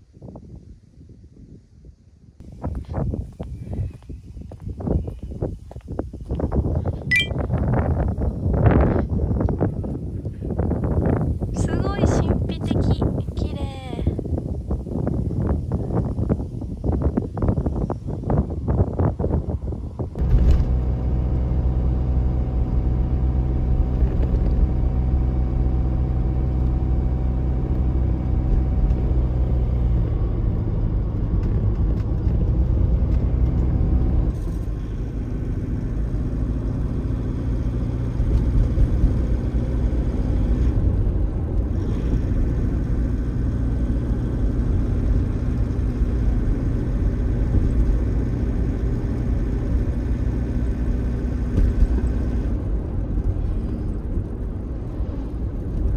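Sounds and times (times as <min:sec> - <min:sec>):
tyre and road noise: 0:02.4 - 0:55.9
car engine hum: 0:08.0 - 0:55.9.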